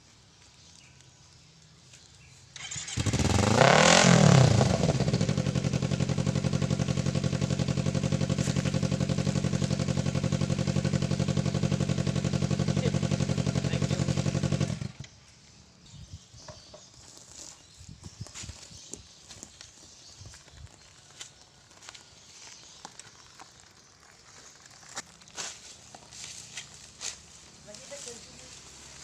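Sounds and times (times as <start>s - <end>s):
motorcycle engine revving and idling: 2.6s - 15.3s, 25.9s - 29.0s.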